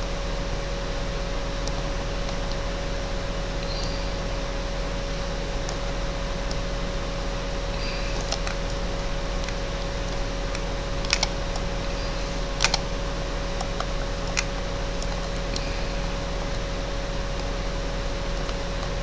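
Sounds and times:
steady background hum: 0.0 - 19.0
keyboard and mouse clicks: 10.5 - 12.9.

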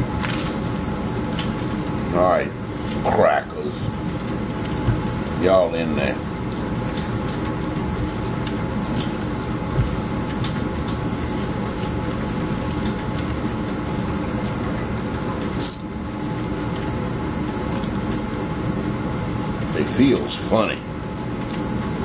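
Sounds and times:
steady mechanical hum: 0.0 - 22.0.

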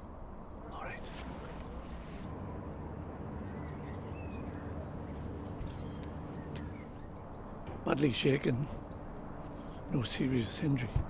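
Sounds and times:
steady low hum: 0.0 - 10.9
faint bird chirps: 0.6 - 7.5.

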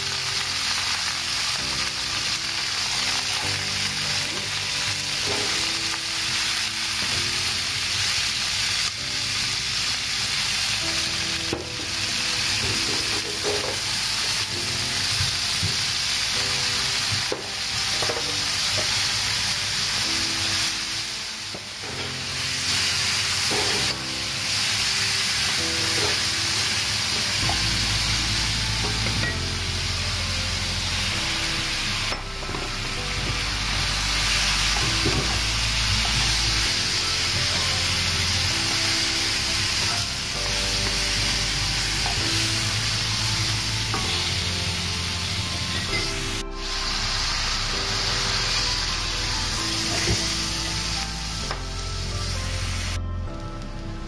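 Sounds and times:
chicken sizzling in hot oil: 0.0 - 53.0.

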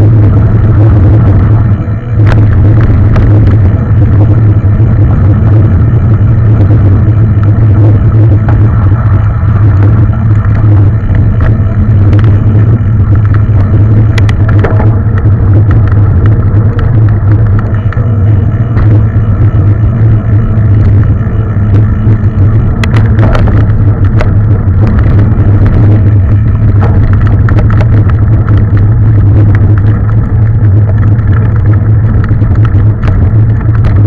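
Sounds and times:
mountain bike rumbling on trail: 0.0 - 34.0
bike clicks and rattles: 0.3 - 34.0.

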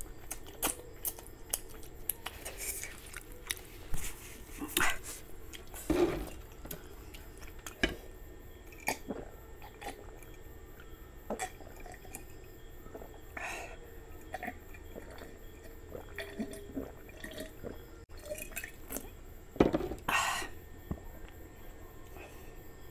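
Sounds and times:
person swallowing water: 14.3 - 17.8.

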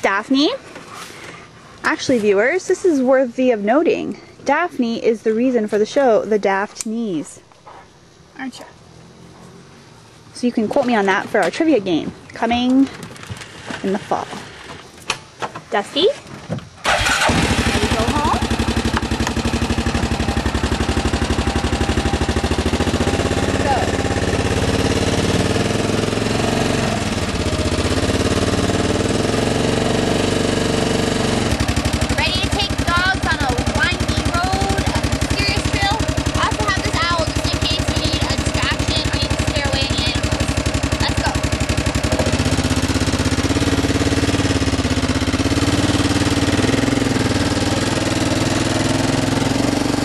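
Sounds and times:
small vehicle engine running: 16.8 - 50.0.

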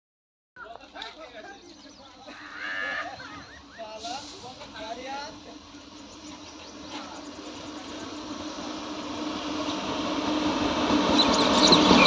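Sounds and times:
low locomotive hum: 0.6 - 12.0
train wheels rumbling on rail: 2.9 - 12.0.

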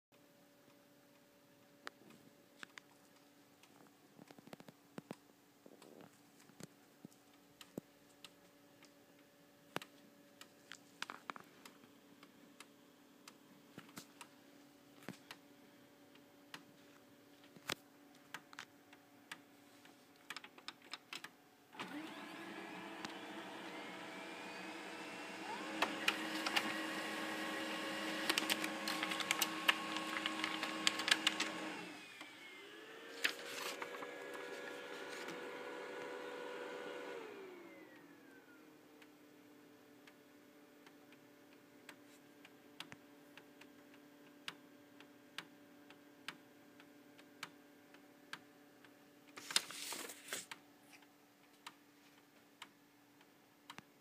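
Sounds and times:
printer faint hum: 21.7 - 39.0
printer motors whirring: 21.8 - 39.2
printer clicking and clattering: 24.5 - 32.0
printer light clicks: 25.6 - 32.3.

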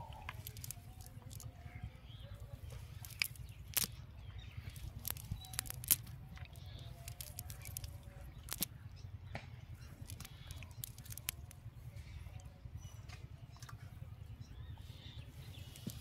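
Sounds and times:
net clicking and snapping: 0.0 - 1.5, 2.9 - 4.0, 4.7 - 8.7, 10.0 - 11.6, 15.8 - 16.0
steady low rumble: 0.0 - 16.0.

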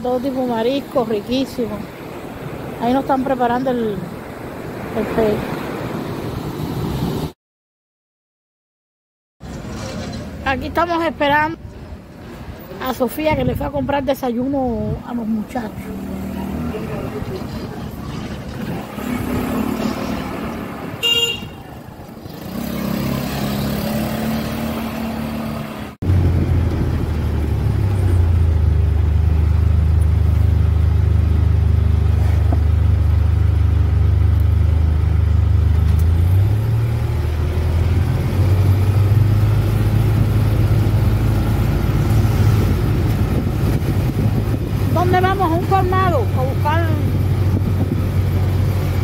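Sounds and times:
street noise: 0.0 - 7.4, 9.4 - 49.0
vehicle engine droning: 15.4 - 49.0
horn toot: 20.9 - 21.8.

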